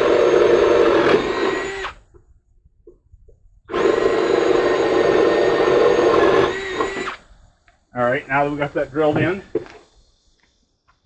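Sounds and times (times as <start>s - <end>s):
electric drill boring through wood: 0.0s - 2.1s, 3.7s - 7.2s.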